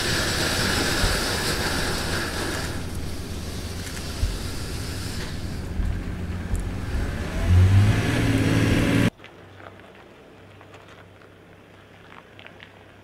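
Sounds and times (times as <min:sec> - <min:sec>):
engine revving: 0:00.0 - 0:09.1
low engine hum: 0:00.0 - 0:09.1
water and mud splashing: 0:00.0 - 0:13.0
faint clicks over gravel: 0:01.0 - 0:06.7, 0:09.1 - 0:13.0.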